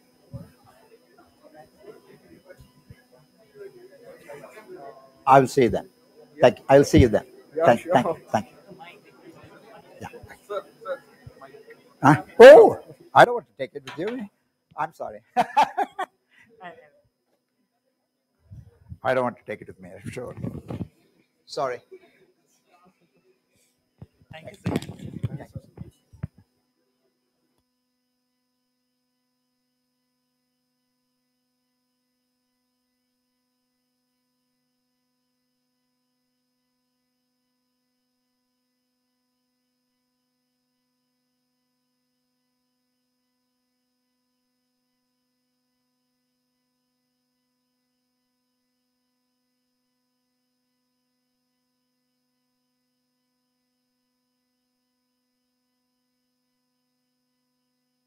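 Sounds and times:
faint electrical hum: 0:00.0 - 0:17.6, 0:18.4 - 0:28.3.

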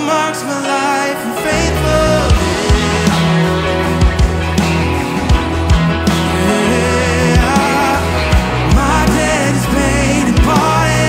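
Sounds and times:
man singing: 0:00.0 - 0:04.3, 0:06.2 - 0:11.0
acoustic and electric guitars: 0:00.0 - 0:11.0
keyboard: 0:00.0 - 0:11.0
low drum thumps: 0:01.5 - 0:06.4.

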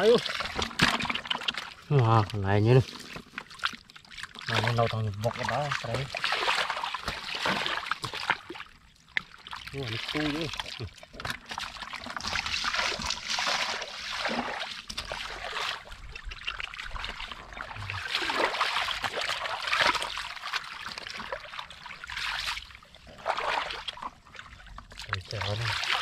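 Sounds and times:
muddy water sloshing: 0:00.0 - 0:26.0.

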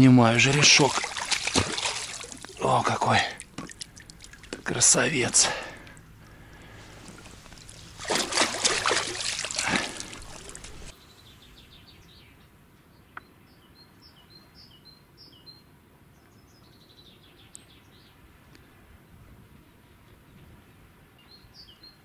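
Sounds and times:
water splashing hard: 0:00.3 - 0:10.9
small birds chirping: 0:00.4 - 0:15.6.

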